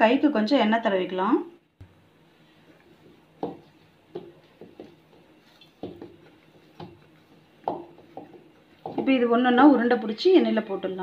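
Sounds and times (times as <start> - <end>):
dull knocks of dough in glass bowl: 3.4 - 5.0, 5.8 - 6.2, 7.6 - 9.2.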